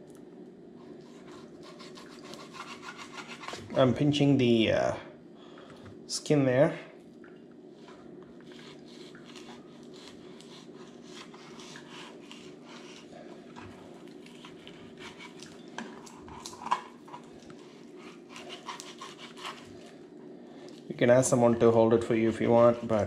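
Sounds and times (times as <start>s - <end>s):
steady low hum: 0.0s - 23.0s
knife scraping cutting board: 1.0s - 3.8s, 8.5s - 19.9s, 22.2s - 23.0s.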